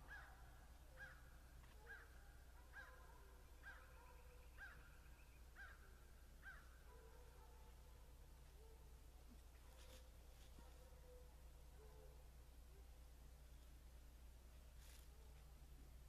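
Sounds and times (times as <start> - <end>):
distant hounds baying: 0.0 - 4.9, 9.7 - 12.3.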